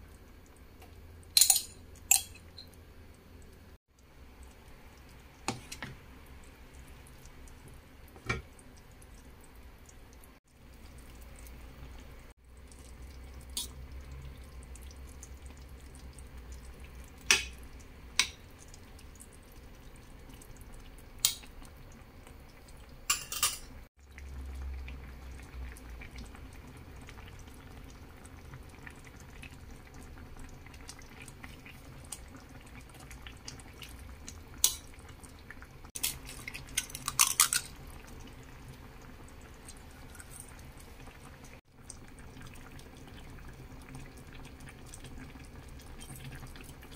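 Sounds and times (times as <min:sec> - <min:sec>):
stew bubbling: 0:00.0 - 0:46.9
knocks and clinks against pot: 0:01.4 - 0:02.5, 0:23.1 - 0:23.7
egg cracking clicks: 0:36.0 - 0:37.7.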